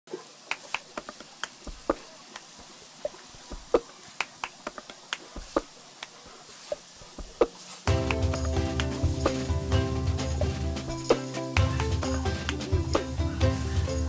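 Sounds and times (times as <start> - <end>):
sprinkler spraying water: 0.1 - 14.0
sharp ticks and taps: 0.5 - 9.5.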